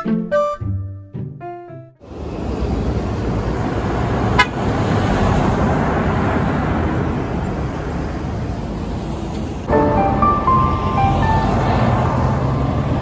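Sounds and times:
truck passing: 2.0s - 13.0s
truck horn toot: 4.4s - 4.7s.

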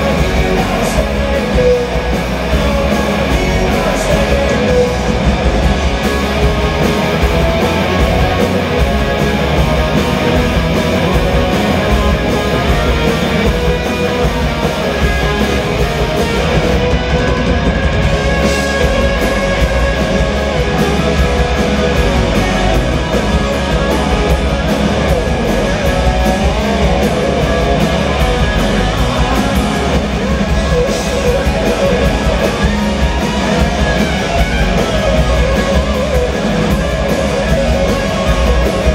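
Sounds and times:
drum kit: 0.0s - 38.9s
electric guitars: 0.0s - 38.9s.

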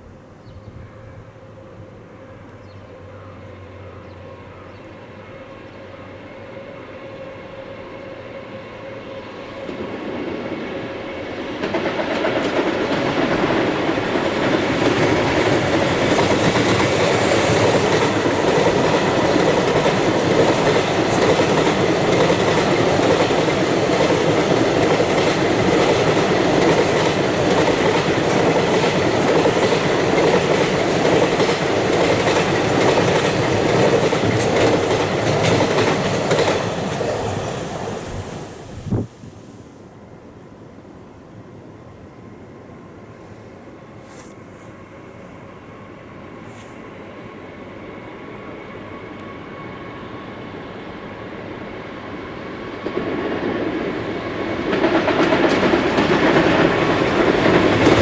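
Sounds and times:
electric locomotive approaching: 0.0s - 58.0s
freight wagons rumbling on rails: 11.4s - 37.9s, 54.5s - 58.0s.

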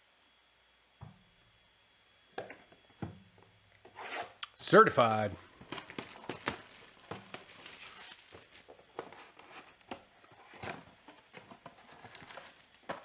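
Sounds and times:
plastic shrink wrap crinkling: 5.0s - 9.9s
cardboard box handling: 5.6s - 13.0s.

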